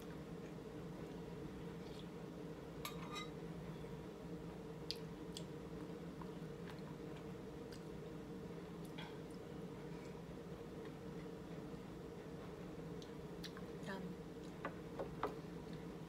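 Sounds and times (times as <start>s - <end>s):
metal spoon clinking on bowl: 2.9s - 3.3s.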